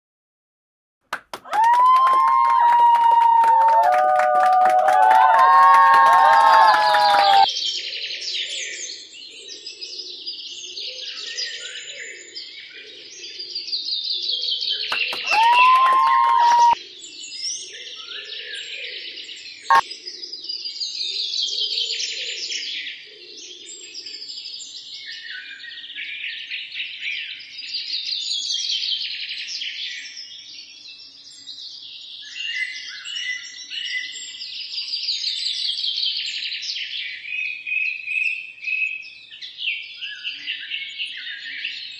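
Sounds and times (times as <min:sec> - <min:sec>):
loud pitched bird call: 0:05.2 - 0:07.5, 0:15.0 - 0:16.8.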